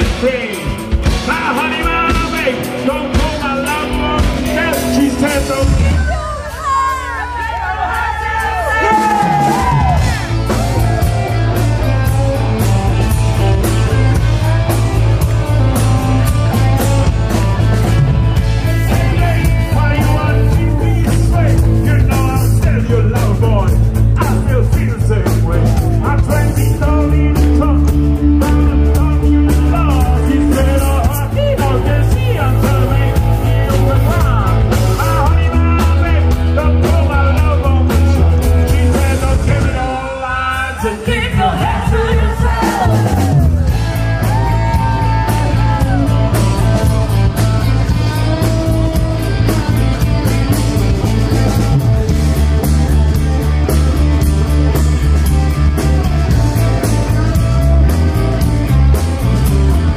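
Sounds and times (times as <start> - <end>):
electric guitar: 0.0 - 59.9
live rock band playing: 0.0 - 59.9
low bass notes: 0.0 - 59.9
person singing: 13.7 - 52.0.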